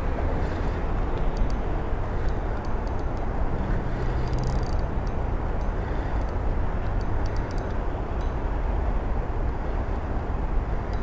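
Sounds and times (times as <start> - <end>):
wind buffeting microphone: 0.0 - 11.0
fishing reel ticking: 0.6 - 8.4.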